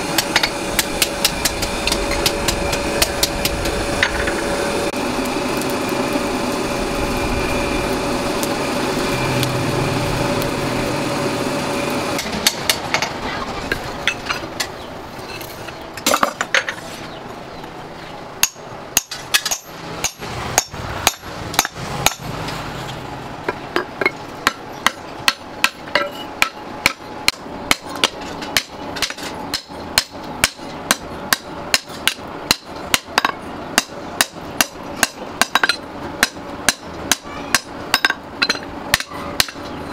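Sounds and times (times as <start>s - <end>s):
forge blower humming: 0.0s - 39.9s
hammer striking metal: 12.2s - 13.1s, 18.4s - 22.4s, 23.5s - 39.7s.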